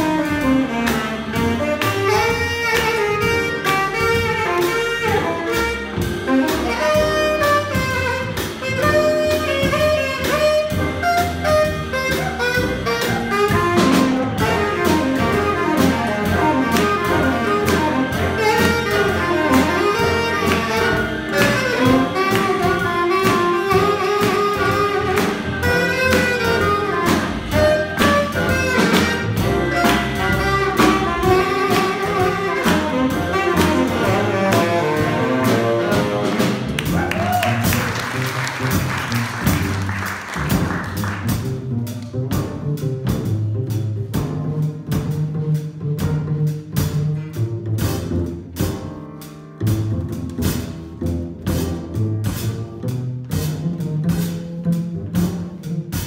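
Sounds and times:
saxophone solo: 0.0s - 41.6s
drum kit with cymbals: 0.0s - 56.0s
piano and keyboard: 0.0s - 56.0s
walking upright bass: 0.0s - 56.0s.

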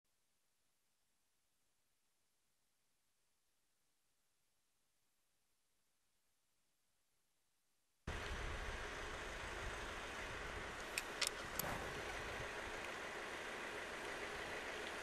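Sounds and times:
street rumbling hum: 8.1s - 15.0s
sharp clicks: 10.9s - 11.8s.

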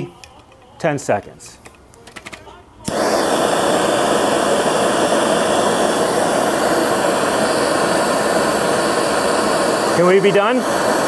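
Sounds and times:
blowtorch hissing: 2.8s - 11.0s.

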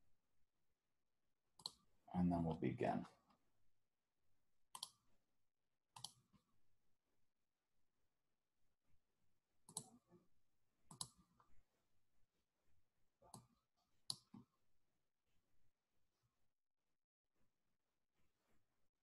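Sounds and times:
faint computer mouse clicks: 4.8s - 5.0s, 6.0s - 6.2s, 10.9s - 11.2s.

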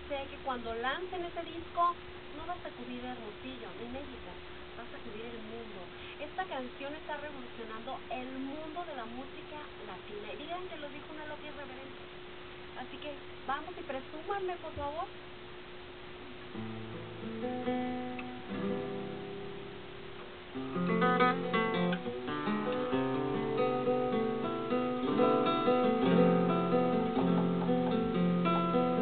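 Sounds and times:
acoustic guitar playing: 16.3s - 29.0s.

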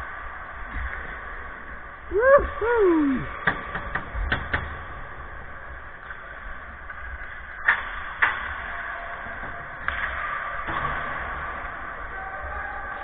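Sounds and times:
hockey sticks and puck clacking: 6.8s - 13.0s.

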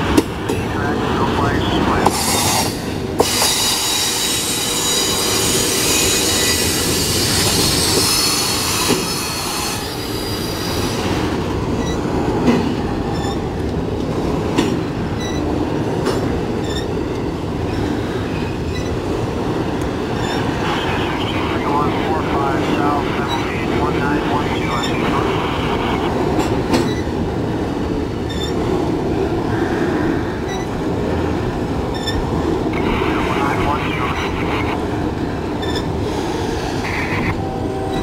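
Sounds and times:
freight train rumbling: 0.0s - 38.0s
train wheels clacking on rails: 2.0s - 20.6s, 26.2s - 32.6s
train wheels squealing: 2.2s - 11.0s, 13.1s - 13.5s, 16.6s - 16.9s, 17.7s - 19.0s, 28.3s - 28.6s, 31.9s - 32.2s, 35.6s - 38.0s.

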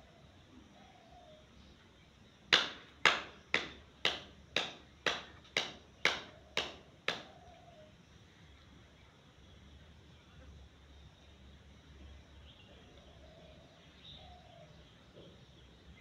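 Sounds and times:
sharp hand claps: 2.5s - 7.4s.

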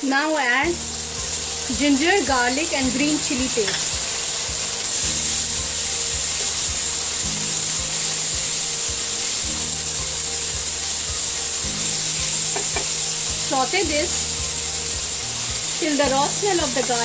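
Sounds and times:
frying sizzle: 0.0s - 17.0s.

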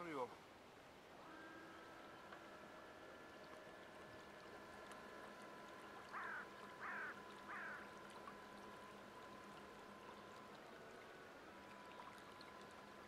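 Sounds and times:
electric motor whine: 1.1s - 13.0s
bird calling: 6.1s - 7.9s.

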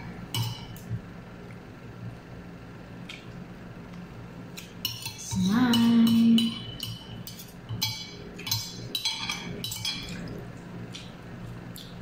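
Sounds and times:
cutlery clinking on ceramic plates: 4.8s - 10.2s.

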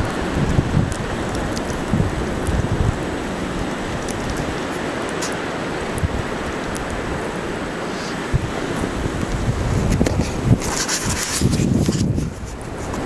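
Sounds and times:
snowstorm wind hissing: 0.0s - 13.0s
wind gusts buffeting microphone: 0.0s - 13.0s
light ticks: 3.6s - 7.0s.

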